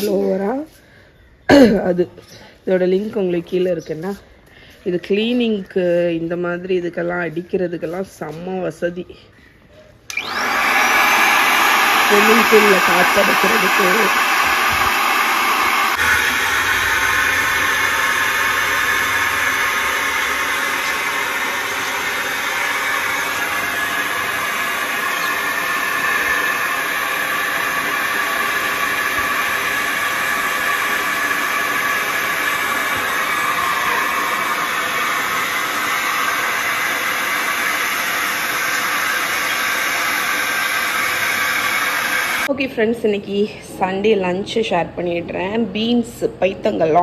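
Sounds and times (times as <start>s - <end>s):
air blower hissing: 10.1s - 42.5s.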